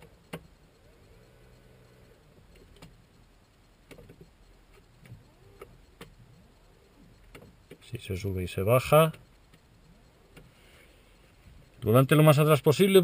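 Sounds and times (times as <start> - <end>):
faint electric motor running: 0.0 - 12.0.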